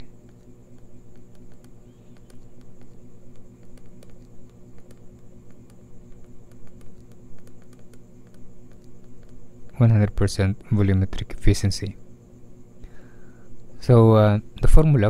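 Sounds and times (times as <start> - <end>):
faint ticks: 0.0 - 9.8
electrical hum with whine: 0.0 - 15.0.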